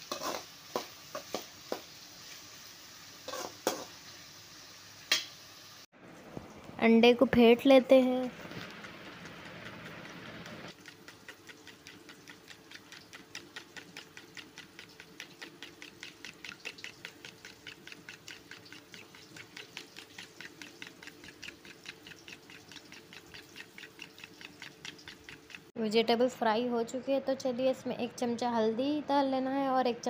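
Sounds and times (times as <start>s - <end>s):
whisk clicking against bowl: 8.5s - 25.7s.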